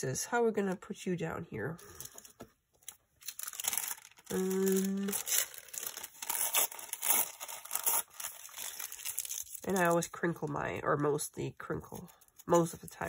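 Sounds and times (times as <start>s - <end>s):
wax paper crinkling: 1.8s - 10.6s
person humming a note: 4.3s - 5.2s.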